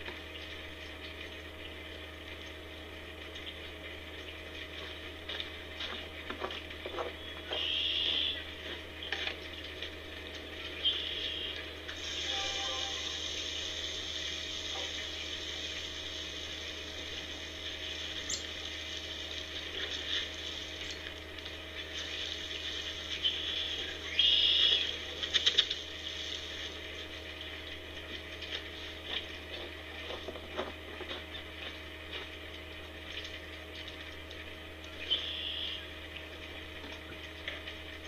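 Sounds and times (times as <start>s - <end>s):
steady hiss: 11.1s - 20.9s.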